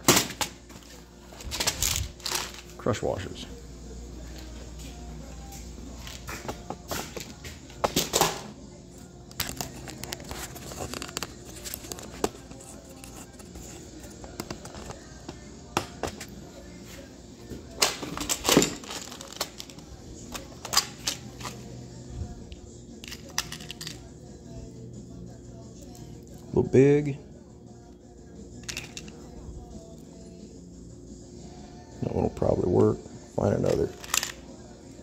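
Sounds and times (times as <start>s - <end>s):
background music: 0.0s - 35.0s.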